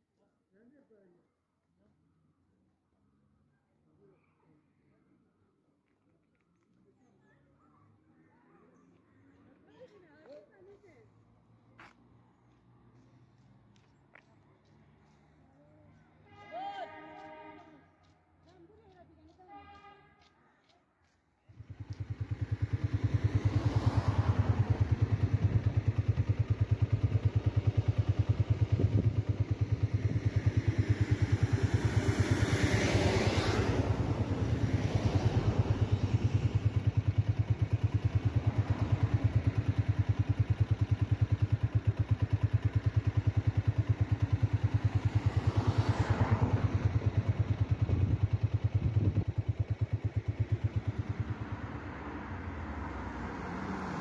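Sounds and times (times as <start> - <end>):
vehicle engine running: 21.5 - 54.0.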